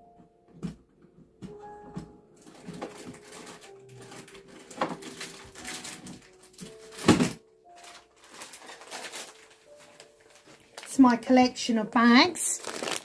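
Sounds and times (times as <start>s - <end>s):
rustling of handled objects: 2.4s - 11.3s, 12.4s - 13.0s.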